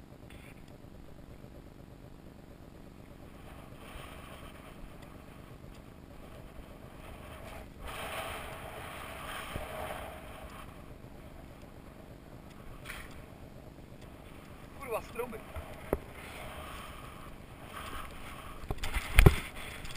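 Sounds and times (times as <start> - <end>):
wind rumble on microphone: 0.0 - 19.9
snowboard swishing through snow: 6.3 - 11.0.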